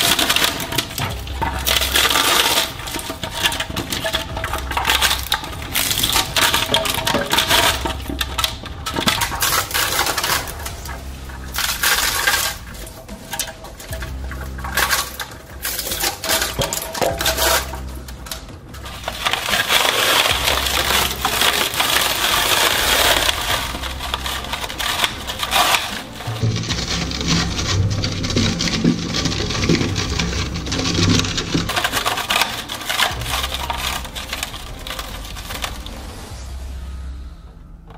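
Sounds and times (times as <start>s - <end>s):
shredder crunching plastic toy: 0.0s - 36.2s
shredder machine hum: 0.0s - 36.2s.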